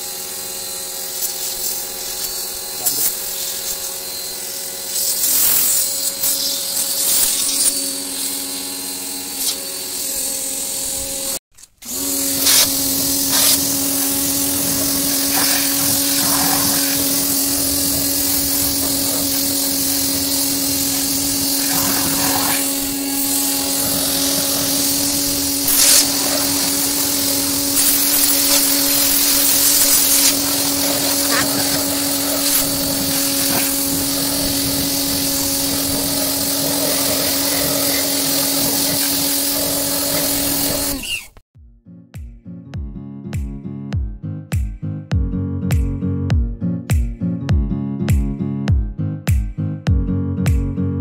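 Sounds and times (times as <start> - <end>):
power sprayer motor whining: 0.0 - 41.4
water jet hissing on car: 12.4 - 41.3.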